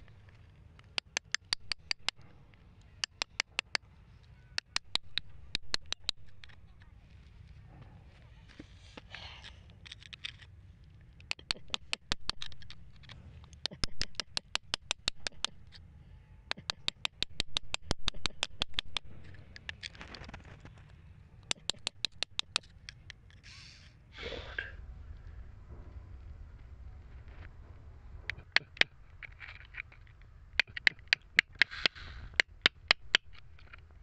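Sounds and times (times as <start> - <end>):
pointed tool tapping rock: 0.0 - 2.4, 3.0 - 3.8, 4.5 - 6.7, 11.2 - 15.8, 16.5 - 20.0, 21.4 - 23.4, 28.2 - 34.0
grit scraping: 22.6 - 34.0.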